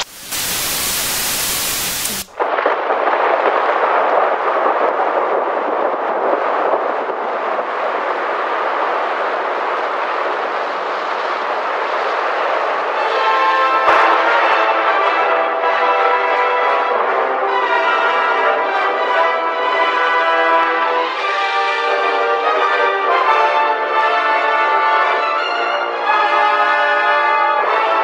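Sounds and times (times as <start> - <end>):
television static hiss: 0.0 - 2.5
heavy rain: 0.0 - 26.2.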